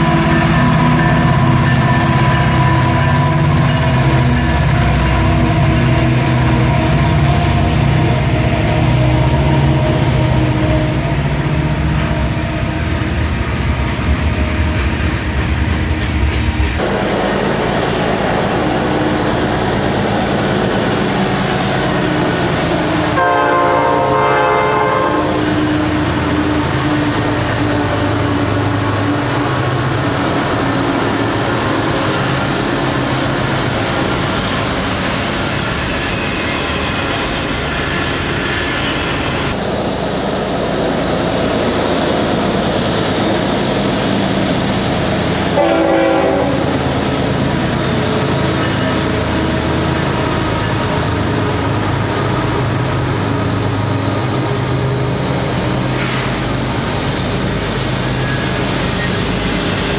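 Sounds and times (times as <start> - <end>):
train air horn: 0.0 - 13.5, 23.1 - 27.0, 45.5 - 46.8
freight train rumbling past: 0.0 - 59.9.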